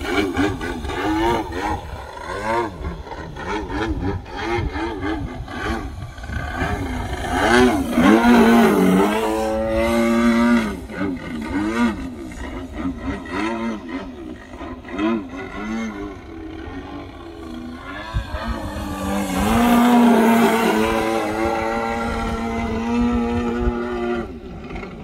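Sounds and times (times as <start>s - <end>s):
model plane engine: 0.0s - 25.0s.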